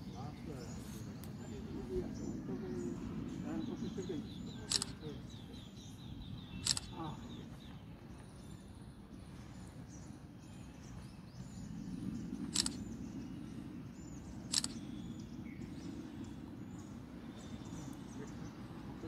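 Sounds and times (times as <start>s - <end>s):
faint bird chirps: 0.0s - 19.0s
low rumble of wind: 0.0s - 19.0s
sharp clicks: 4.7s - 5.0s, 6.6s - 7.0s, 12.5s - 12.8s, 14.5s - 14.8s.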